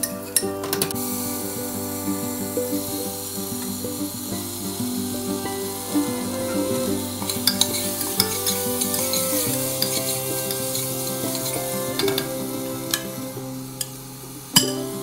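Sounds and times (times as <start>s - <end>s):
soft background music: 0.0s - 15.0s
vegetables sizzling: 0.0s - 15.0s
metal spoon scraping pot: 5.5s - 14.0s.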